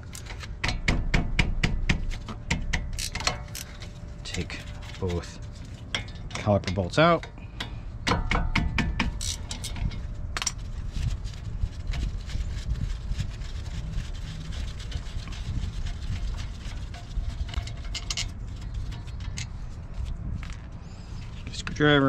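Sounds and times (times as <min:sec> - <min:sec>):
steady low rumble: 0:00.0 - 0:22.0
wrench and bolts clinking: 0:09.2 - 0:10.0.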